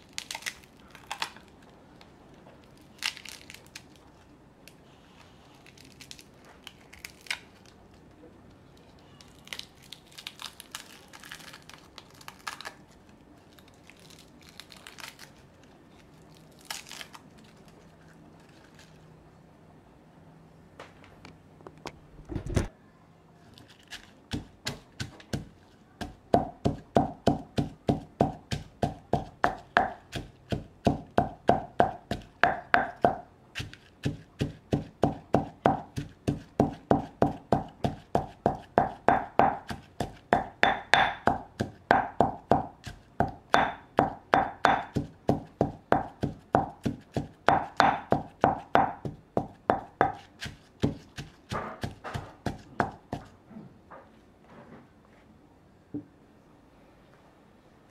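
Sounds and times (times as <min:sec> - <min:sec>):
heavy low thump: 0:22.2 - 0:22.7
pestle pounding in mortar: 0:24.3 - 0:53.3.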